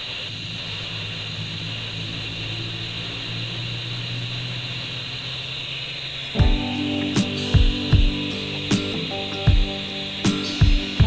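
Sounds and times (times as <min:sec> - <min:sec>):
radio receiver hiss: 0:06.4 - 0:11.0.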